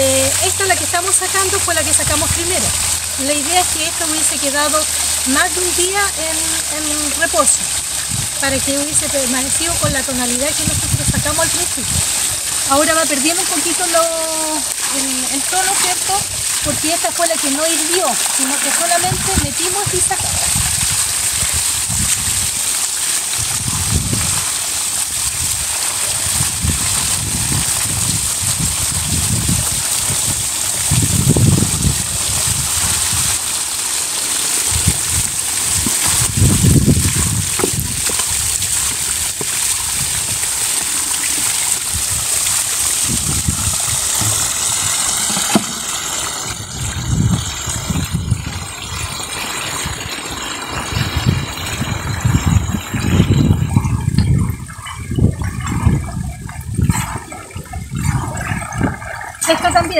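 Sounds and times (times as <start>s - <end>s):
water poured from a bucket: 0.0s - 59.9s
water rushing into a wheelbarrow: 0.0s - 59.9s
water sloshing: 0.0s - 59.9s
low rumbles: 34.7s - 59.9s.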